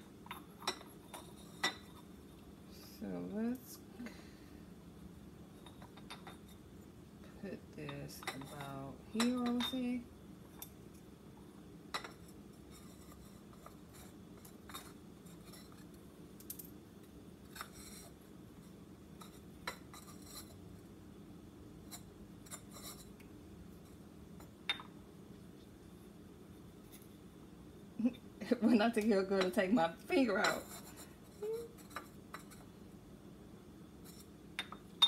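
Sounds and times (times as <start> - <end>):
flower pots and tools clinking: 7.8 - 10.0, 28.6 - 32.7, 34.0 - 35.0.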